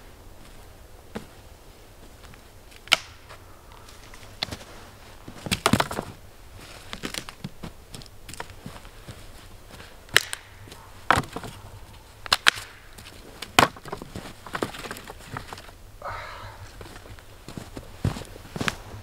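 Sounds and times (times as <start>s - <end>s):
footsteps in snow: 0.0s - 19.0s
rustling: 0.0s - 19.0s
dry branches knocking and clattering: 2.0s - 15.8s.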